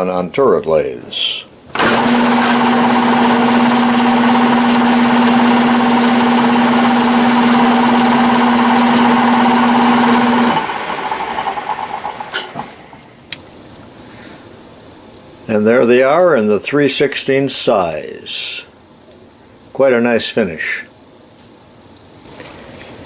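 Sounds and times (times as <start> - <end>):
lathe chuck rattling: 1.7 - 12.9
metal lathe humming: 1.7 - 13.0.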